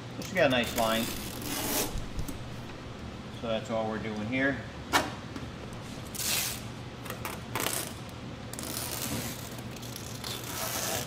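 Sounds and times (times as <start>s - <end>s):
tape ripping off roll: 0.6s - 2.4s, 6.0s - 11.0s.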